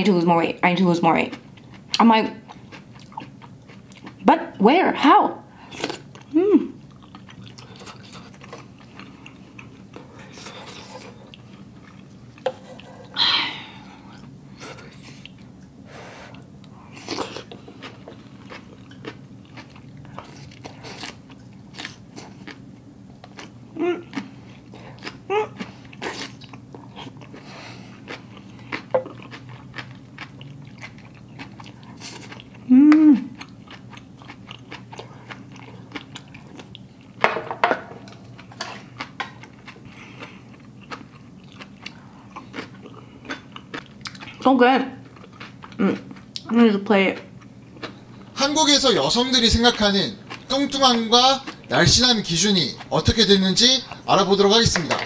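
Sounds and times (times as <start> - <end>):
person chewing and smacking: 1.3 - 4.2, 5.8 - 13.2, 14.0 - 37.2, 38.0 - 44.4, 45.0 - 46.5, 47.2 - 48.3, 49.7 - 52.1
wet chewing clicks and smacks: 17.4 - 22.6, 28.0 - 32.7, 33.4 - 37.2, 38.1 - 44.4.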